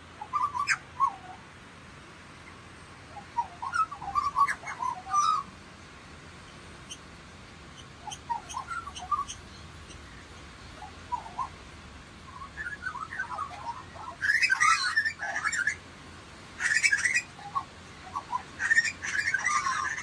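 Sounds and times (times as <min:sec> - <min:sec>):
lorikeets chirping: 0:00.2 - 0:01.4, 0:02.4 - 0:05.5, 0:06.3 - 0:11.6, 0:12.2 - 0:15.8, 0:16.6 - 0:20.0
lorikeets screeching: 0:00.2 - 0:01.4, 0:02.5 - 0:05.5, 0:07.7 - 0:11.6, 0:12.3 - 0:15.8, 0:16.6 - 0:20.0.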